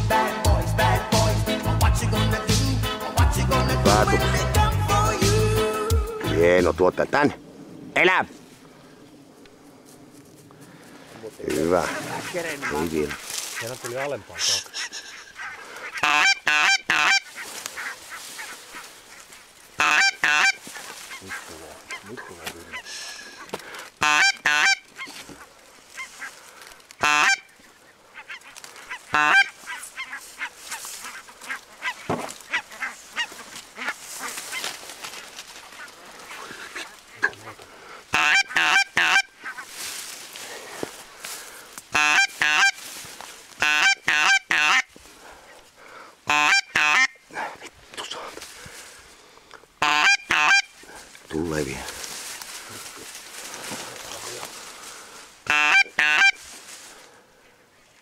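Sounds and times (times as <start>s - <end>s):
geese honking: 10.7s - 47.3s, 49.8s - 57.2s.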